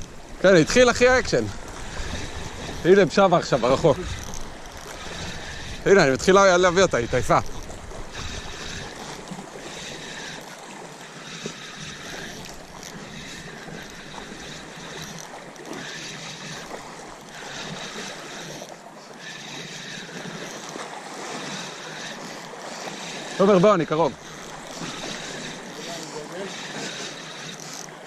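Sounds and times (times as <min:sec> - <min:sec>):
wind on microphone: 0:00.0 - 0:09.4
fishing reel cranking: 0:00.0 - 0:28.0
waves washing against rocks: 0:00.0 - 0:28.0.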